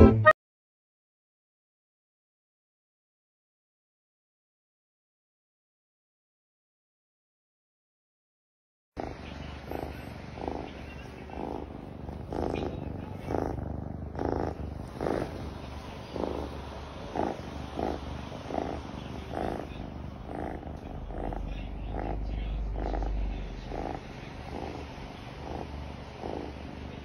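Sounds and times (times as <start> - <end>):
cat purring: 9.0 - 27.0.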